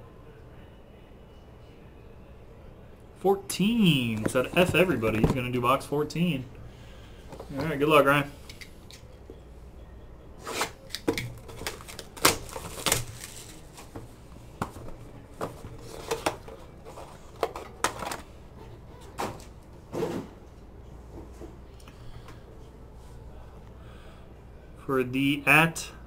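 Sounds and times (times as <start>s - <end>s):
rustling of wrapper and cardboard: 10.4s - 18.4s.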